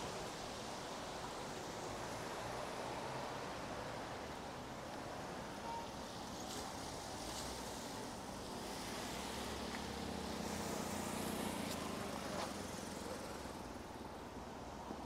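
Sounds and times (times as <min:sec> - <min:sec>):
car driving past on wet street: 0:06.0 - 0:13.8.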